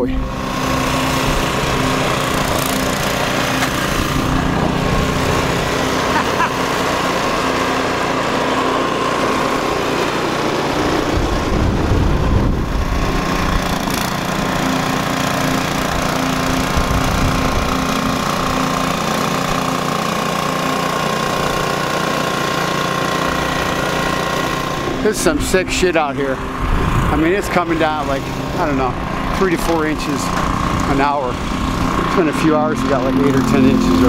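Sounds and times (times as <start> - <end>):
snowblower engine running: 0.0 - 34.0
wind buffeting microphone: 11.0 - 13.9, 26.5 - 27.3.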